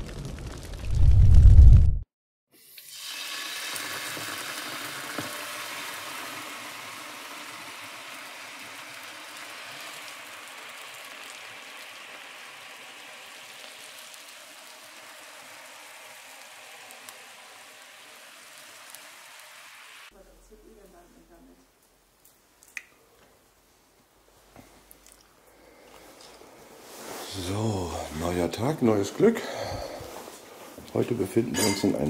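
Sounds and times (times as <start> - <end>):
deep boom: 0.0 - 2.0
steady hiss: 25.6 - 32.0.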